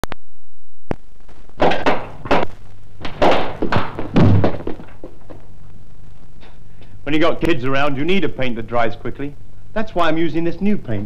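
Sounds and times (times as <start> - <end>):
balls knocking and thudding: 1.6 - 5.5.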